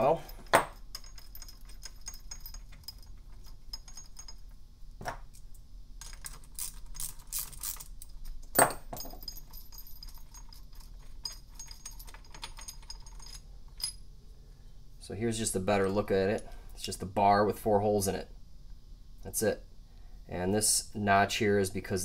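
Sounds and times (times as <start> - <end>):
metal clinks of bolts and socket: 0.0 - 14.0.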